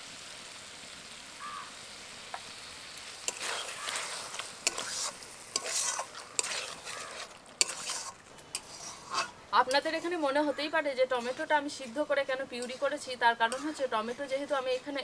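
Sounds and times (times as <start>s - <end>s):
curry sizzling in a pan: 0.0s - 15.0s
steel spatula scraping a pan: 3.1s - 10.4s, 11.0s - 15.0s.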